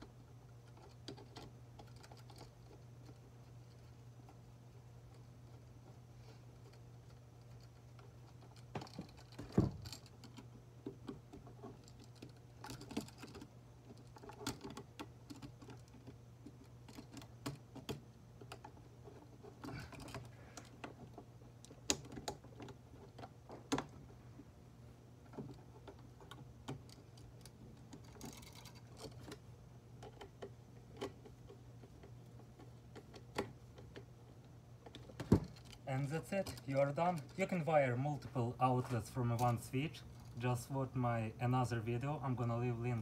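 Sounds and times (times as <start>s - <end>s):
steady low hum: 0.0s - 43.0s
electrical outlet wires clicking: 7.0s - 24.1s.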